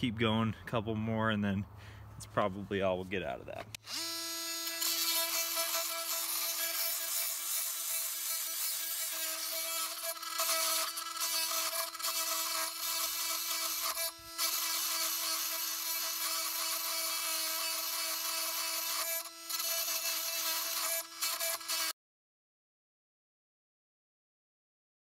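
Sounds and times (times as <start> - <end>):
oscillating multi-tool buzzing: 3.8 - 22.0.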